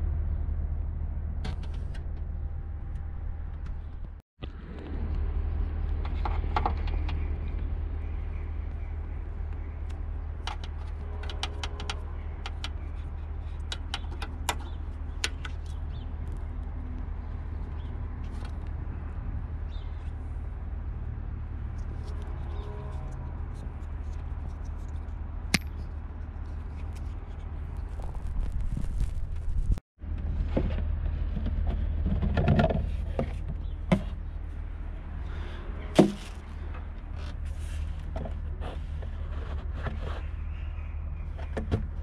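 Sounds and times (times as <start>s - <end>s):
steady low rumble: 0.0s - 11.2s, 14.4s - 32.1s.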